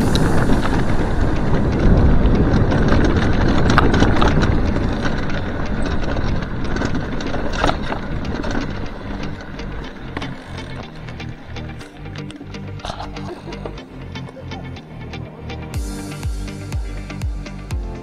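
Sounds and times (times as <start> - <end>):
wind on microphone: 0.0 - 10.5
tyres crunching on gravel: 0.0 - 13.8
bike rattling: 0.0 - 18.0.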